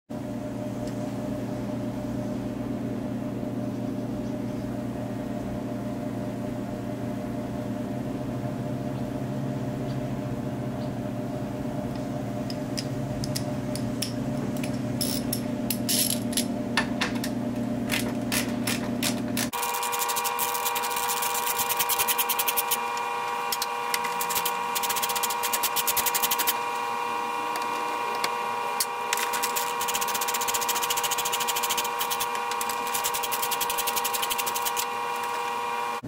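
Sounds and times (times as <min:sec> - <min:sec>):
steady low hum: 0:00.2 - 0:36.0.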